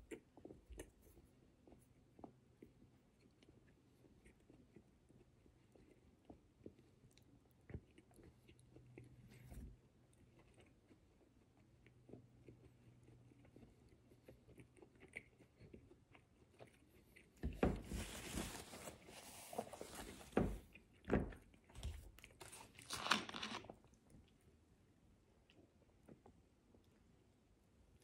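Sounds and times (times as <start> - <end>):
person chewing food: 0.0 - 17.8, 20.6 - 24.5
rustling and crackling handling: 17.5 - 23.8.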